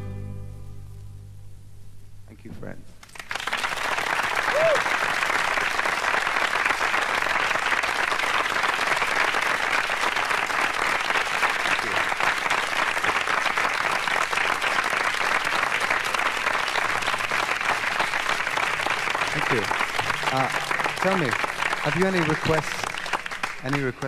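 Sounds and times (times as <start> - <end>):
audience applauding: 3.0 - 24.0.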